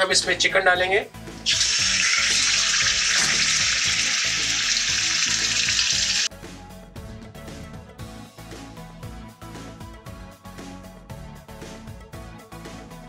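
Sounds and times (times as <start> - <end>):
chicken sizzling in oil: 1.4 - 6.3.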